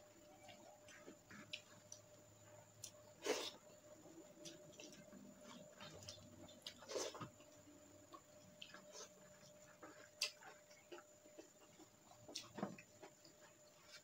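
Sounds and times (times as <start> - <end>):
mouth clicks and smacks chewing: 8.6 - 12.5.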